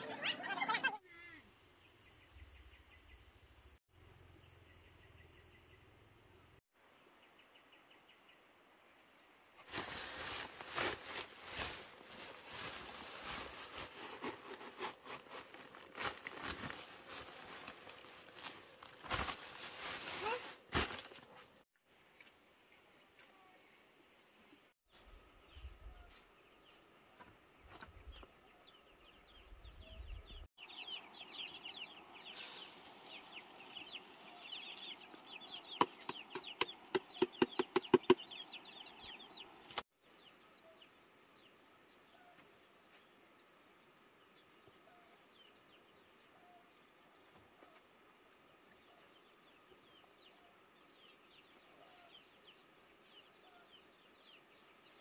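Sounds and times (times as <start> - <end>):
small birds chirping: 24.4 - 55.0.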